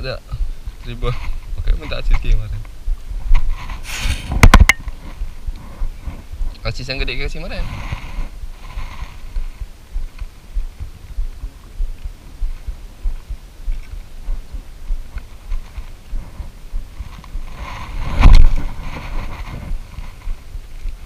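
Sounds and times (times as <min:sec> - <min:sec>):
sleeve brushing microphone thumps: 0:00.4 - 0:21.0.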